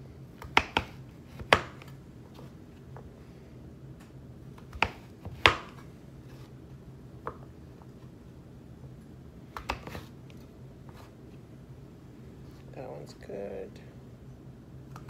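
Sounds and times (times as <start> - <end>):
knife chopping on cutting board: 0.4 - 1.9, 4.6 - 5.8, 9.6 - 10.1.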